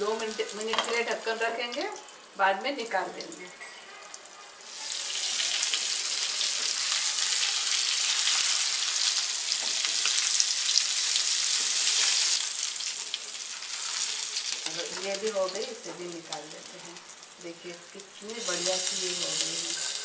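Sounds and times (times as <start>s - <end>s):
fish frying in hot oil: 4.0s - 20.0s.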